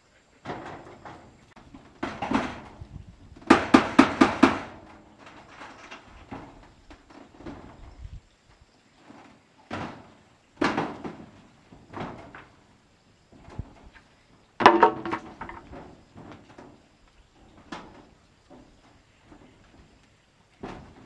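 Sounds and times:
hard objects knocking and clunking: 0:14.6 - 0:16.3.

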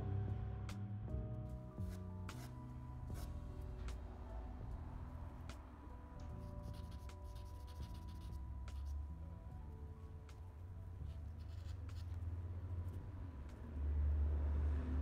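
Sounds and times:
soft background music: 0:00.0 - 0:15.0
charcoal scratching on paper: 0:06.6 - 0:09.0, 0:11.1 - 0:12.2.

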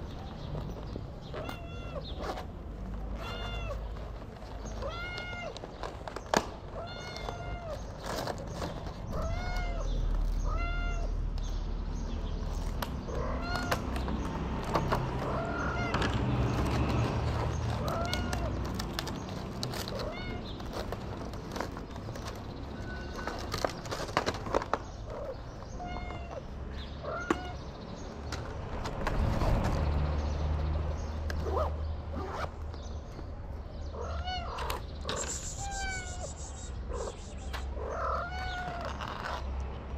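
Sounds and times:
cat meowing: 0:01.3 - 0:02.0, 0:03.1 - 0:03.9, 0:04.8 - 0:05.6, 0:06.8 - 0:07.8, 0:09.1 - 0:11.2, 0:13.1 - 0:13.8, 0:15.2 - 0:16.0, 0:17.8 - 0:18.5, 0:19.9 - 0:20.5, 0:22.8 - 0:23.4, 0:33.9 - 0:39.1.

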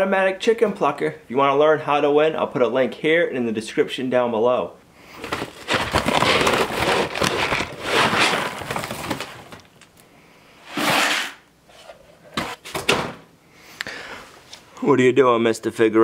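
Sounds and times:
plastic scoop digging into feed: 0:05.2 - 0:09.6, 0:10.7 - 0:11.4.

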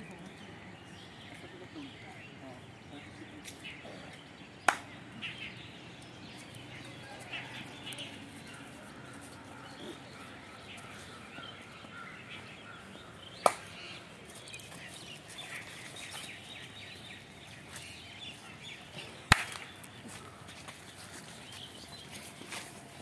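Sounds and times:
faint birdsong: 0:00.0 - 0:23.0
sharp hand claps: 0:04.6 - 0:05.0, 0:13.4 - 0:13.8, 0:19.3 - 0:19.8.

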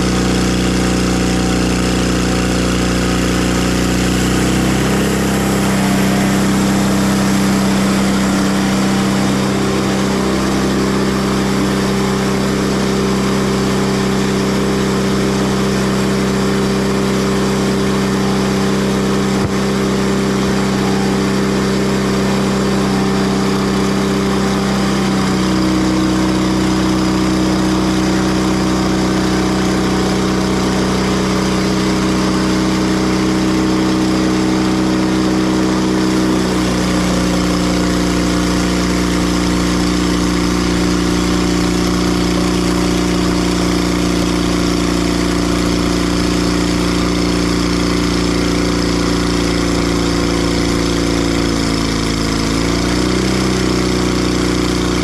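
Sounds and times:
bandsaw mill engine running: 0:00.0 - 0:55.0.

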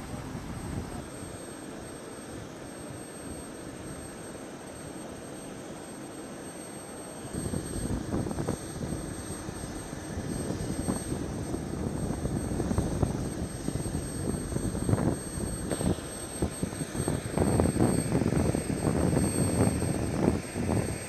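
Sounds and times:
helicopter high whine: 0:00.0 - 0:21.0
helicopter rumble and thumps: 0:07.2 - 0:21.0.

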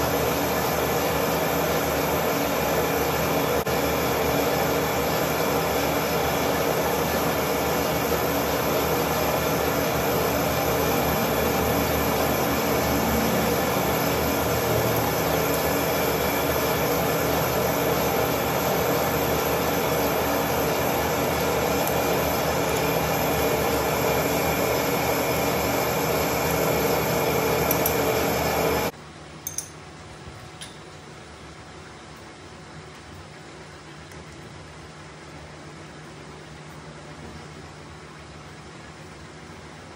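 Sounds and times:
metal lathe running: 0:00.0 - 0:28.9.

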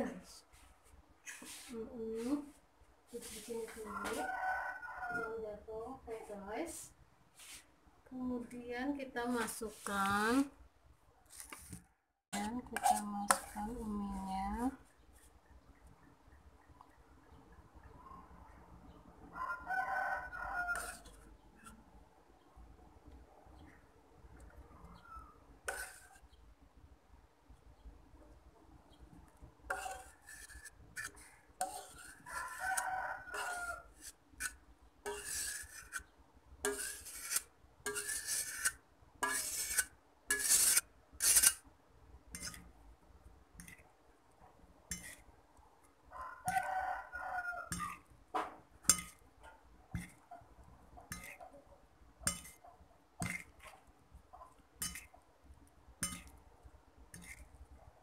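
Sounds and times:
rooster crowing: 0:03.9 - 0:05.4, 0:19.3 - 0:21.0, 0:32.2 - 0:33.9, 0:46.1 - 0:48.0
fork scraping on ceramic plate: 0:12.4 - 0:13.6, 0:20.6 - 0:21.8, 0:25.7 - 0:26.2, 0:29.7 - 0:41.6, 0:42.3 - 0:42.7, 0:44.9 - 0:45.3, 0:47.7 - 0:48.1, 0:51.1 - 0:51.5, 0:52.3 - 0:52.6, 0:54.4 - 0:55.1, 0:57.1 - 0:57.5.

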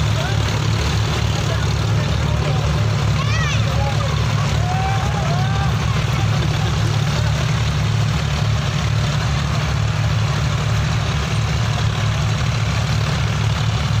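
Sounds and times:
tractor diesel engines under load: 0:00.0 - 0:14.0.

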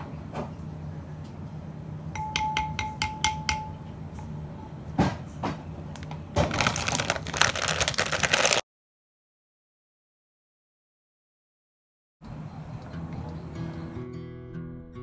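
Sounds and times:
spoon tapping glass bowl: 0:02.1 - 0:03.9
plastic packet crinkling: 0:06.0 - 0:08.6.

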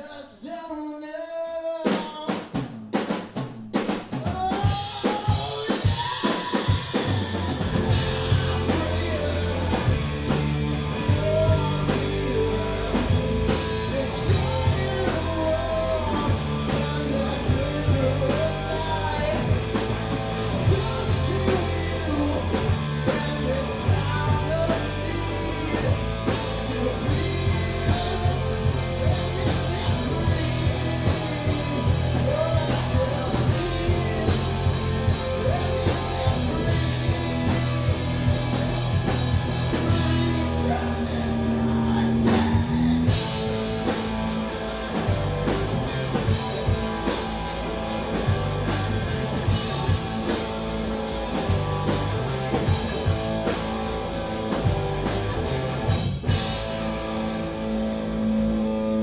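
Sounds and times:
man singing: 0:00.0 - 0:02.8, 0:04.1 - 0:56.0
drum kit: 0:01.5 - 0:59.0
electric guitar: 0:04.6 - 0:59.0
electric bass: 0:06.4 - 0:59.0.

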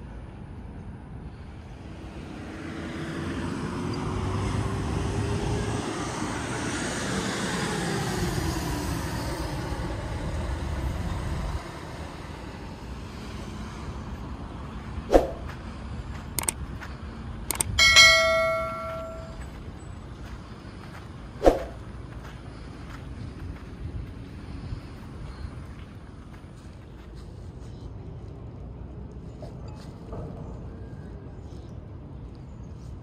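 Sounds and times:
road vehicle passing by: 0:00.9 - 0:33.0
sharp clicks: 0:16.4 - 0:16.6, 0:17.4 - 0:18.4.

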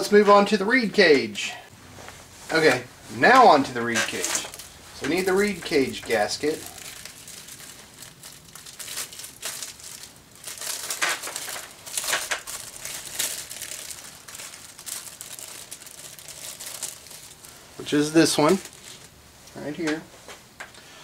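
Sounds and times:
plastic bag crinkling: 0:02.5 - 0:19.2.

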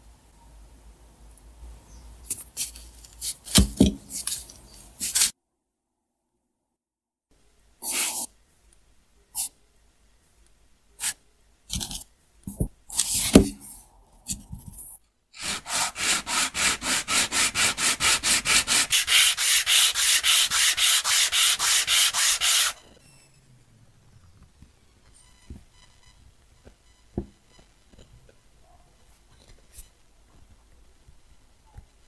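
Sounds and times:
wood block sanding on sandpaper: 0:15.4 - 0:22.8.

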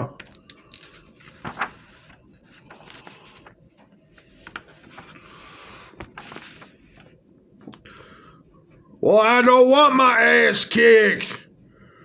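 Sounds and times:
paper rustling: 0:00.2 - 0:07.7.

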